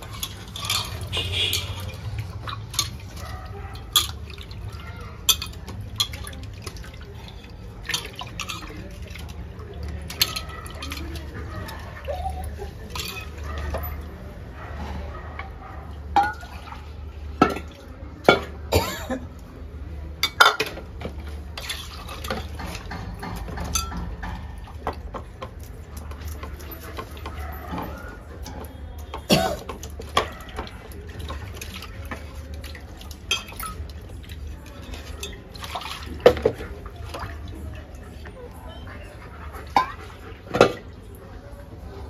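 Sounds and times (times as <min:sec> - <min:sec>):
clinks against bowl: 0:00.0 - 0:02.1, 0:05.2 - 0:06.4, 0:07.9 - 0:08.8, 0:12.9 - 0:14.0, 0:16.2 - 0:16.6, 0:22.2 - 0:25.6, 0:33.3 - 0:34.0
water splashing in steel bowl: 0:00.0 - 0:41.6.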